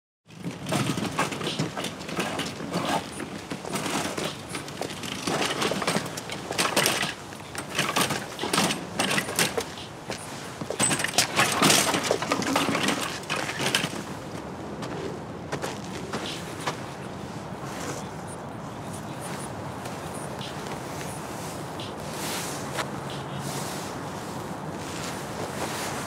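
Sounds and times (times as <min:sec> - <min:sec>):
wire shopping cart rattling: 0:00.3 - 0:14.1
cart wheels bumping over steps: 0:00.3 - 0:17.0.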